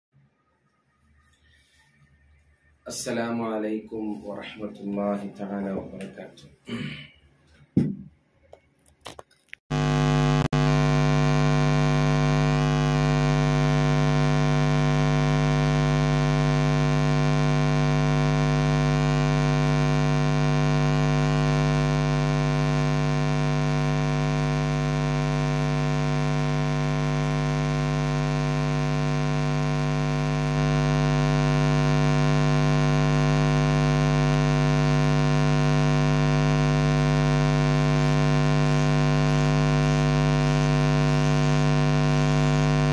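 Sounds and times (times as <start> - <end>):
electrical mains hum: 9.7 - 42.9.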